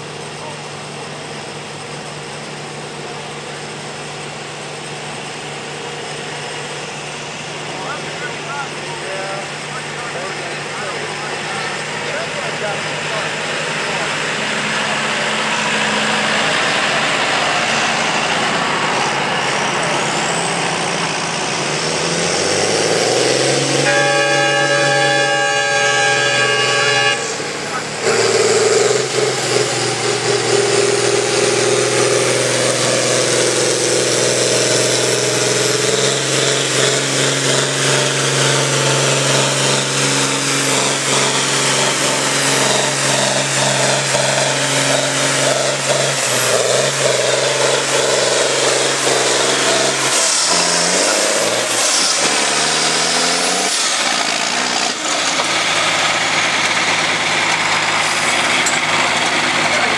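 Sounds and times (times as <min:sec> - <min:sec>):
tractor engine running under load: 0:00.0 - 0:59.9.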